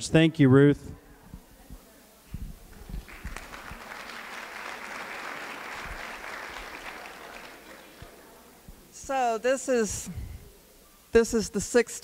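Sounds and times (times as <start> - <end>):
soft low thumps: 1.3 - 3.4
audience applause: 2.8 - 8.4.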